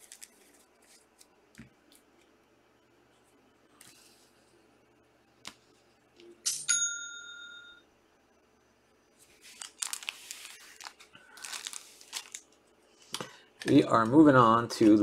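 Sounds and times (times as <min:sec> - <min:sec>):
rustling and clicking handling noises: 0:00.0 - 0:02.3, 0:09.2 - 0:15.0
bell-like notification ding: 0:06.6 - 0:07.8.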